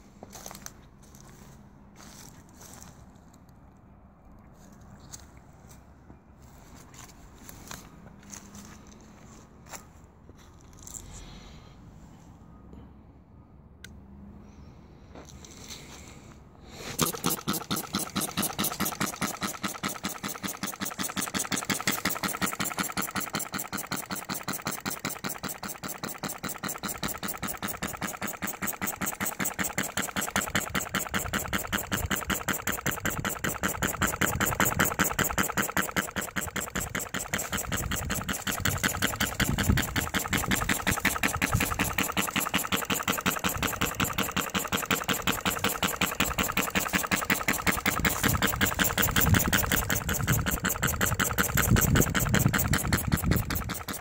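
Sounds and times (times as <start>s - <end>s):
model engine clattering: 16.9s - 54.0s.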